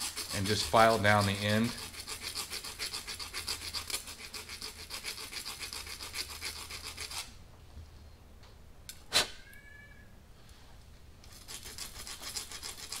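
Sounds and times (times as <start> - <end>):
file scraping metal tube: 0.0 - 7.3, 11.4 - 13.0.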